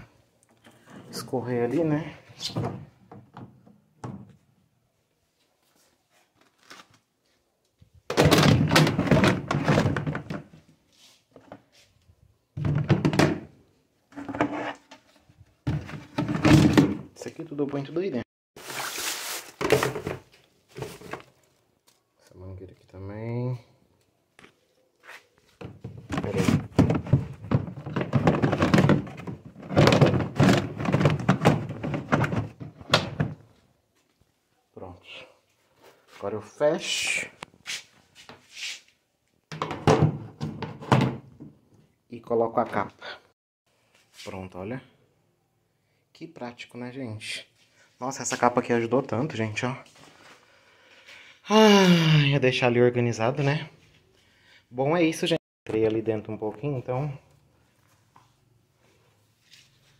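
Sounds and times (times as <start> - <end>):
plastic buckets knocking together: 8.1 - 10.5, 12.6 - 13.6, 15.6 - 17.2, 19.6 - 21.3, 25.6 - 33.5, 39.5 - 41.6.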